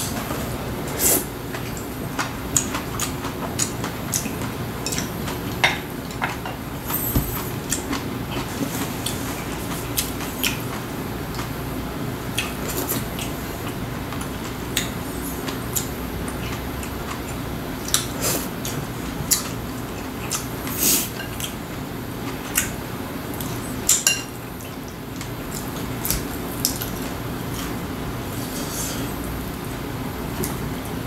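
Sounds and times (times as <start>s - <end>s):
person chewing food: 0.0s - 5.5s, 12.3s - 21.6s
steady low hum: 0.0s - 31.0s.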